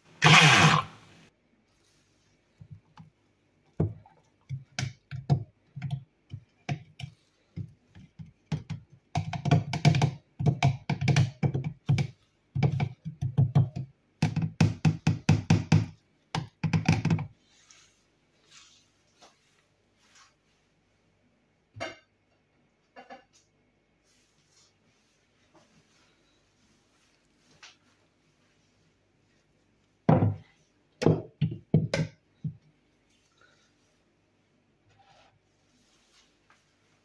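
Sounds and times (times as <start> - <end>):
stick blender bursts: 0.1 - 1.2.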